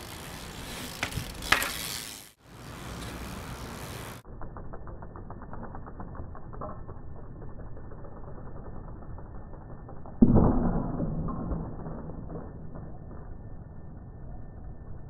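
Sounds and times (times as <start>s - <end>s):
bicycle rolling on asphalt: 0.0s - 10.2s.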